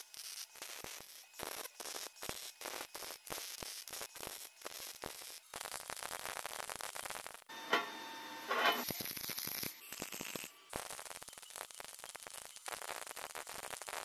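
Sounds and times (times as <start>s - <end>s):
welding arc crackling: 0.0s - 14.0s
steady buzzing tone: 7.5s - 14.0s.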